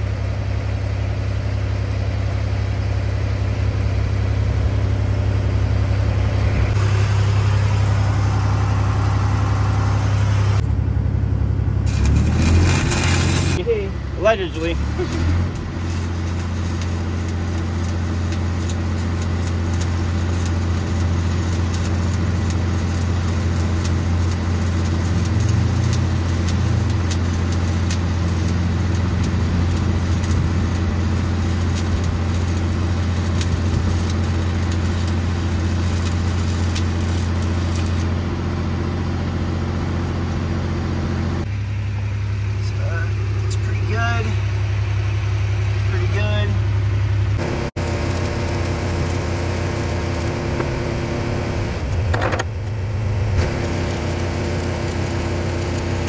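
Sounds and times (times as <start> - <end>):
engine drone: 0.0 - 56.0
welding arc crackling: 11.8 - 38.5, 47.4 - 56.0.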